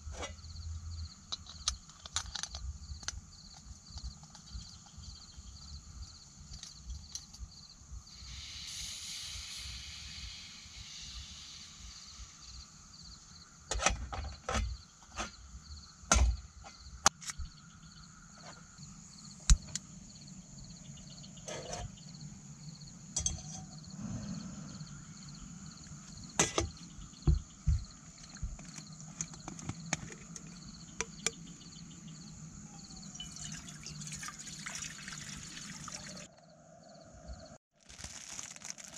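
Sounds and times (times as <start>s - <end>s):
crickets chirping: 0.0s - 38.9s
gas hiss: 8.1s - 12.8s.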